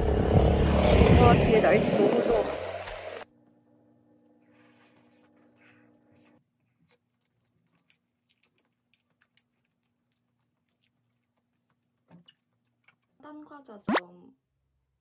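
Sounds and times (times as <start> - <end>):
soft chewing: 4.2 - 13.2.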